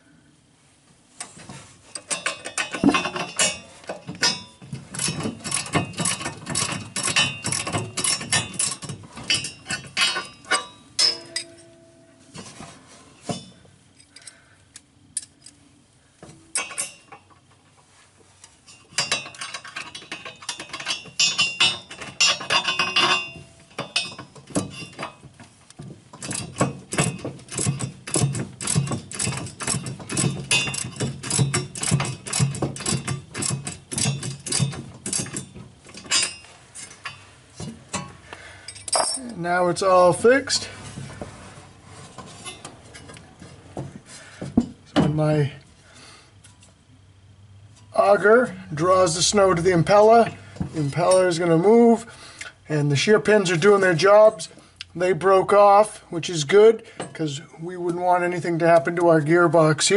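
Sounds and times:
wrench clicking and clinking: 2.0s - 11.7s, 18.7s - 25.2s, 26.2s - 37.2s.

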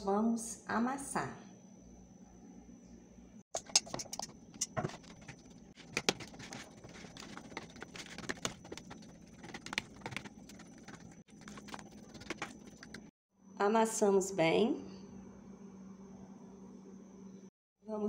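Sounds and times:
fork clicking against plastic bowl: 3.6s - 5.3s
fork mashing food in a bowl: 3.6s - 13.1s.

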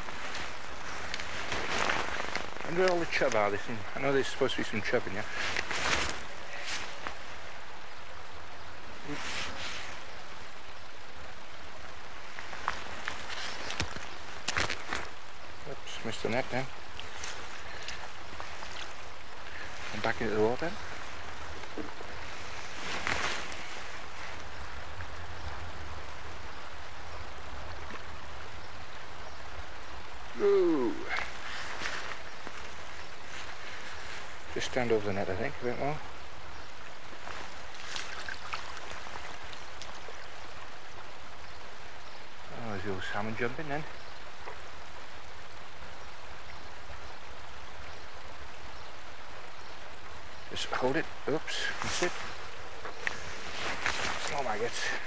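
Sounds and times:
short rustle: 0.0s - 7.6s, 9.0s - 10.5s, 12.1s - 15.4s, 16.0s - 25.1s, 31.0s - 40.6s, 50.7s - 55.0s
river water rushing: 36.0s - 42.5s.

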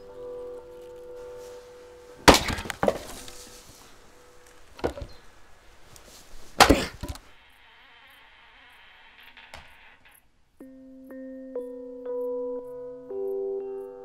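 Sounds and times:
axe striking wood: 2.2s - 3.3s, 4.8s - 5.2s, 6.6s - 7.2s
wood splitting crack: 2.2s - 3.4s, 4.4s - 5.2s, 6.5s - 7.3s
wood clattering: 2.2s - 7.3s.

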